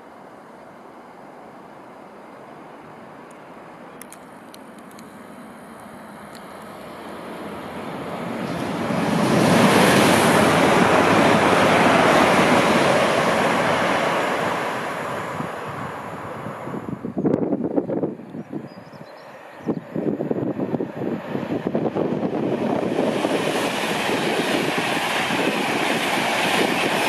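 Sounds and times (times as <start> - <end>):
train passing with rushing roar: 0.0 - 27.0.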